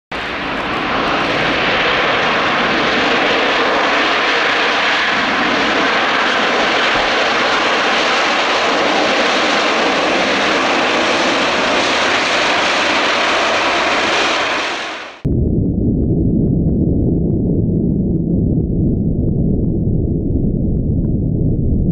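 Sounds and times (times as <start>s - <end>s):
jet engines running: 0.1s - 15.3s.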